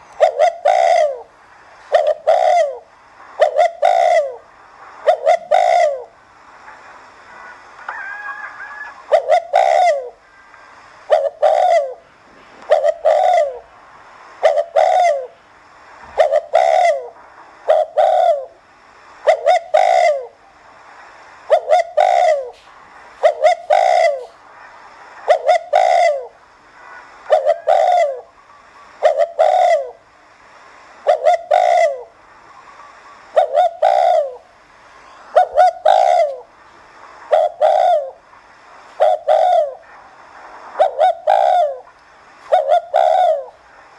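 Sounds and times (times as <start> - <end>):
dove cooing: 0.0 - 6.1, 7.4 - 10.3, 11.1 - 13.7, 14.4 - 15.4, 16.1 - 18.6, 19.2 - 20.4, 21.5 - 24.4, 25.2 - 30.0, 31.0 - 34.5, 35.3 - 36.5, 37.3 - 38.2, 39.0 - 39.9, 40.8 - 43.6.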